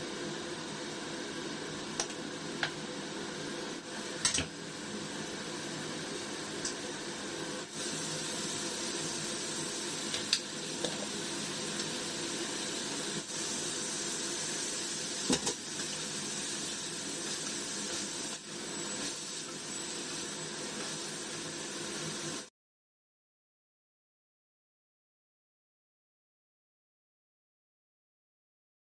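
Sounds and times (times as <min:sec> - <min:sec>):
food sizzling in frying pans: 0:00.0 - 0:22.5.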